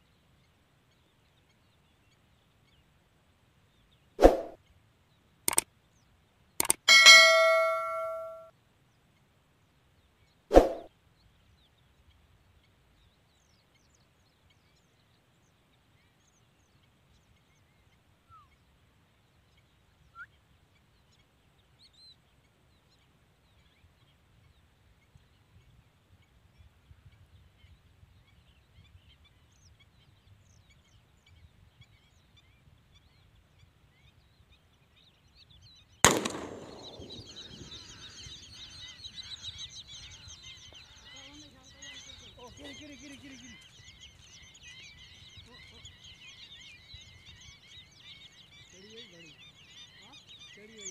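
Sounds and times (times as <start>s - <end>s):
flock of birds calling: 6.6s - 8.4s, 36.0s - 50.9s
faint bird calls: 6.6s - 8.5s, 16.0s - 50.9s
loud shotgun blast: 36.0s - 37.4s.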